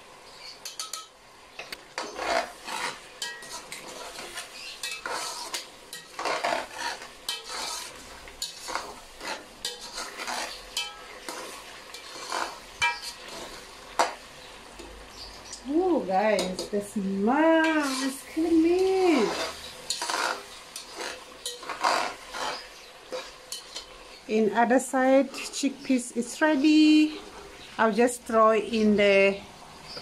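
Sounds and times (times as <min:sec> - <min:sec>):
curry sizzling: 0:00.0 - 0:30.0
metal clicking on pot: 0:00.6 - 0:02.1, 0:10.7 - 0:11.0
spatula scraping a pot: 0:01.9 - 0:14.2, 0:17.6 - 0:24.2.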